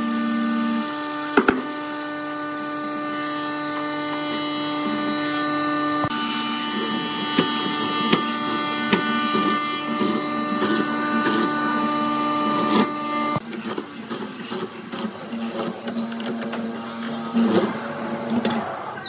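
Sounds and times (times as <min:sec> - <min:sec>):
chisel boring into wood: 0:00.0 - 0:13.4
mortiser motor running: 0:00.0 - 0:19.0.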